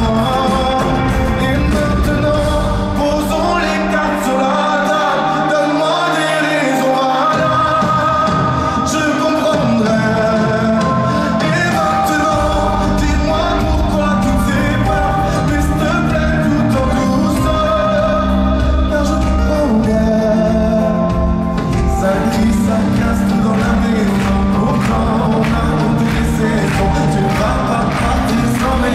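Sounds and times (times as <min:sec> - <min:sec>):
deep bass: 0:00.0 - 0:04.2, 0:11.6 - 0:28.9
live band: 0:00.0 - 0:28.9
man singing into microphone: 0:00.0 - 0:28.9.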